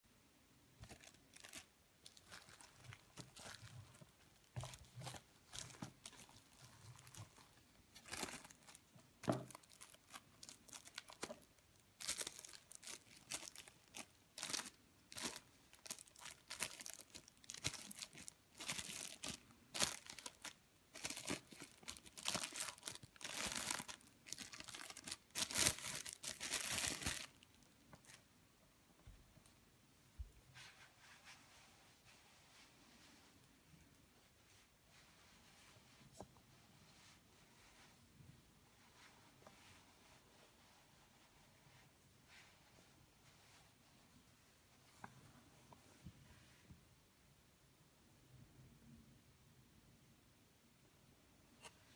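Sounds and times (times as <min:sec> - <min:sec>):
plastic shrink-wrap tearing: 0:09.4 - 0:27.4.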